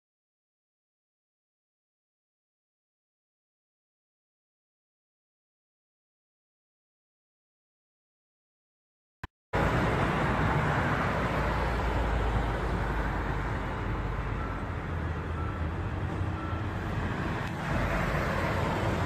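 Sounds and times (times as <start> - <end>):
cars driving past: 9.6 - 19.0.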